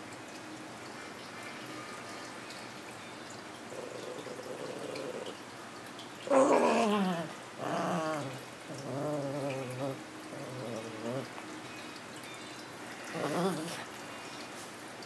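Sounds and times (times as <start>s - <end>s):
puppy growling: 3.7s - 5.4s, 6.2s - 11.5s, 13.0s - 14.0s.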